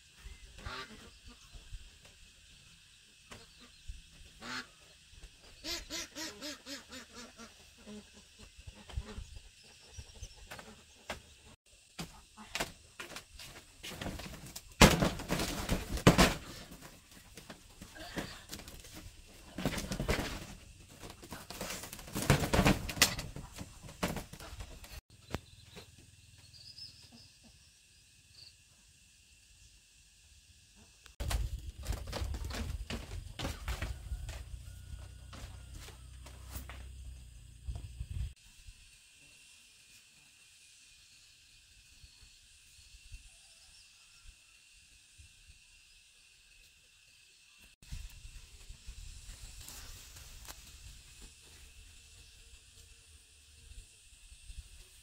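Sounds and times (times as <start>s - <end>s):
domestic fowl calling: 0.6s - 1.6s, 3.3s - 11.3s, 33.4s - 36.8s.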